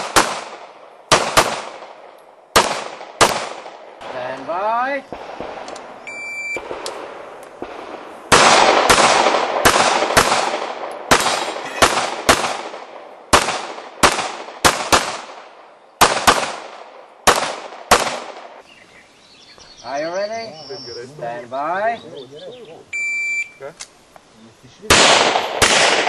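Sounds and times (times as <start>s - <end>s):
gunshots with ringing echo: 0.0s - 4.2s, 6.6s - 18.6s, 24.9s - 26.0s
shot timer beep: 6.1s - 6.6s, 23.0s - 23.6s.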